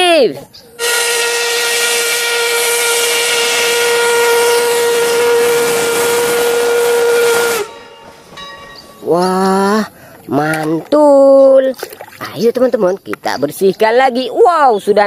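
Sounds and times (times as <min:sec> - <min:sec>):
steam locomotive whistle: 0:00.8 - 0:08.4.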